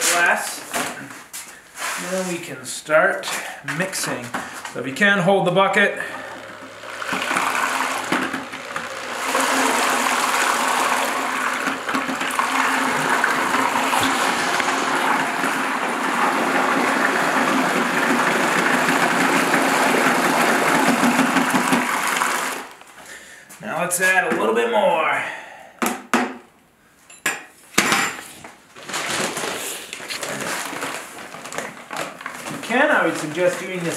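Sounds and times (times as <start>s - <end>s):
drill mixing mortar in bucket: 3.2s - 22.9s, 28.9s - 33.9s.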